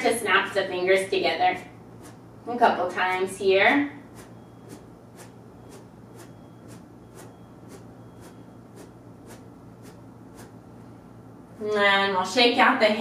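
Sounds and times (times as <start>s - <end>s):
fingers snapping: 4.2s - 10.6s.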